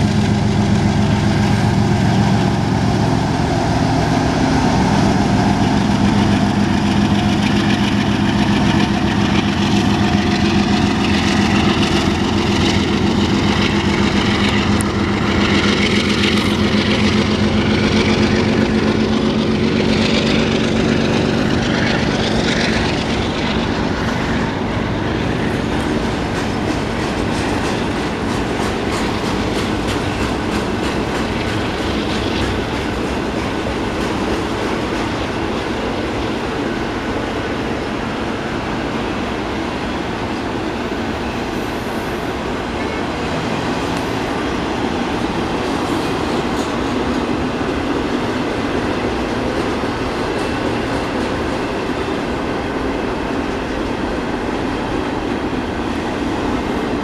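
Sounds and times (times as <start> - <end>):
diesel locomotive engines droning: 0.0 - 57.0
wheels clicking over rail joints: 5.6 - 36.0.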